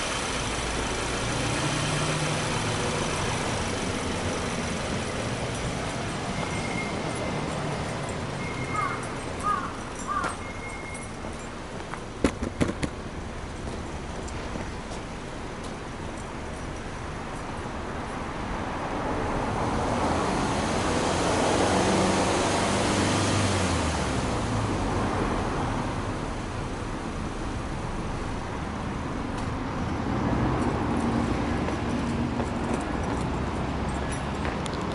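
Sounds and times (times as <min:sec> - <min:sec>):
car exhaust engine running: 0:00.0 - 0:06.3.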